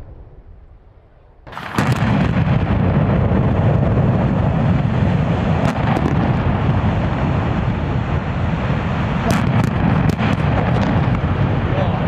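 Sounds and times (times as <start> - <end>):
cooling tower collapsing rumble: 0.0 - 12.0
sharp cracks: 1.4 - 3.6, 9.2 - 11.4.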